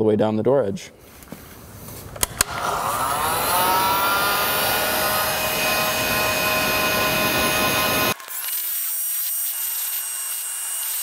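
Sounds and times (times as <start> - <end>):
heat gun fan whine: 2.2 - 11.0.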